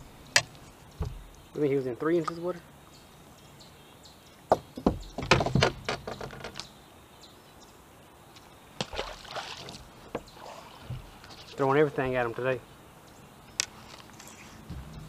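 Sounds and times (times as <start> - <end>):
clicks and knocks on boat deck: 0.4 - 1.3, 4.5 - 6.6
fish splashing into water: 8.8 - 10.8.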